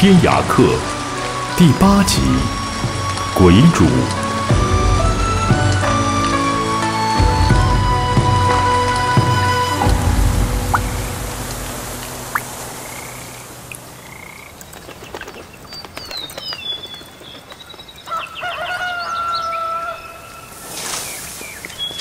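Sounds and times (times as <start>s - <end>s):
frogs croaking: 0.0s - 7.1s, 7.9s - 20.6s
theme music: 0.0s - 14.0s
birds chirping: 0.0s - 22.0s.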